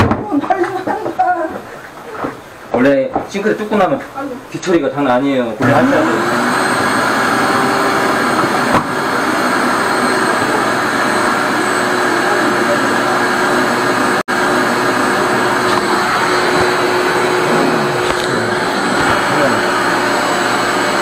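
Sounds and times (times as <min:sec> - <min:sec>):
drain suction machine running: 0:05.6 - 0:21.0.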